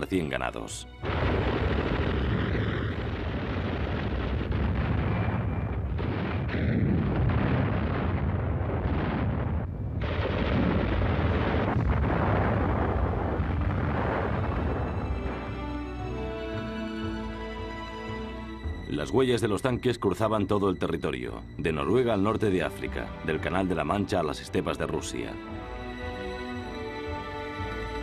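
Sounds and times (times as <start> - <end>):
explosions: 1.0 - 16.0
heavy low rumble: 1.0 - 16.6.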